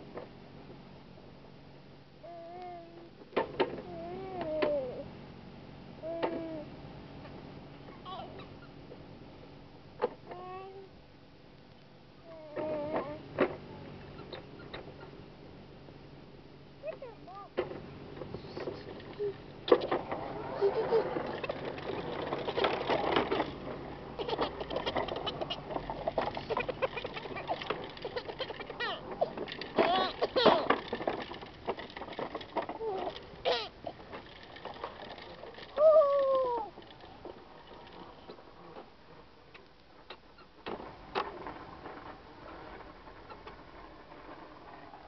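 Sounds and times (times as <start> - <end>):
baby giggling: 20.4 - 21.4, 26.4 - 29.1.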